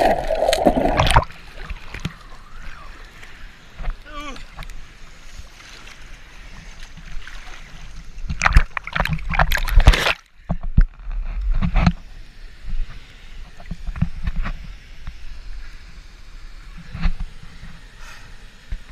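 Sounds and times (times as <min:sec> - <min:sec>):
water splashing: 0:00.0 - 0:10.3
rushing water rumble: 0:00.0 - 0:18.9.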